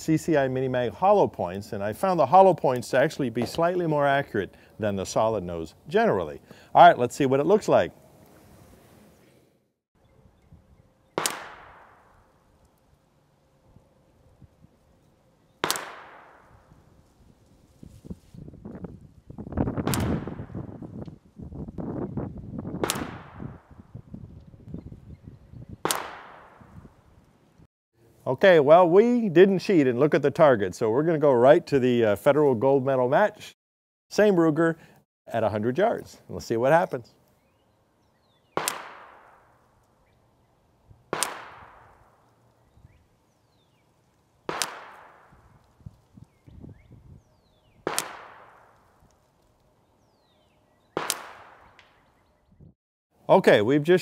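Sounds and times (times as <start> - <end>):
wind rumbling on microphone: 10.0 - 11.0, 13.6 - 15.0, 16.4 - 27.6, 40.8 - 43.7, 45.2 - 47.9, 51.6 - 52.8
pistol gunshots with echo: 11.2 - 12.4, 15.6 - 16.7, 19.8 - 20.7, 22.8 - 23.7, 25.8 - 26.8, 38.6 - 39.6, 41.1 - 42.3, 44.5 - 45.5, 47.8 - 49.0, 50.9 - 52.0.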